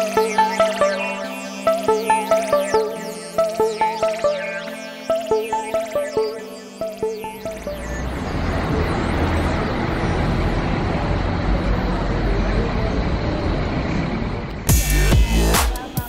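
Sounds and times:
electronic music with heavy beat: 0.0 - 8.8, 14.6 - 16.0
background music: 0.0 - 11.4, 14.6 - 16.0
road traffic rumble: 7.4 - 15.9.

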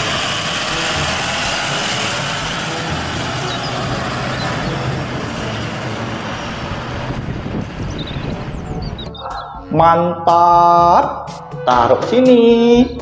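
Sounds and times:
bus engine hum: 0.0 - 9.8
road noise: 0.0 - 12.6.

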